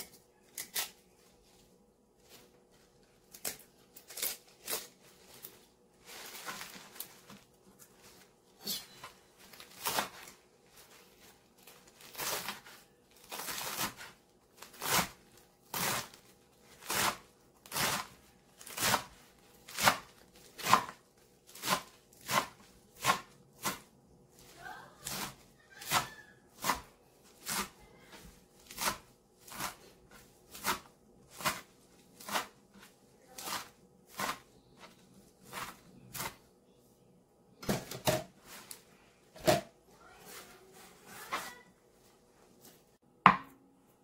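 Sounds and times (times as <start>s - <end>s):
leafy rustling: 2.2s - 15.1s, 40.0s - 41.7s
knife chopping on cutting board: 19.7s - 23.9s, 25.0s - 27.8s, 28.6s - 29.8s, 30.5s - 32.6s, 33.4s - 34.4s.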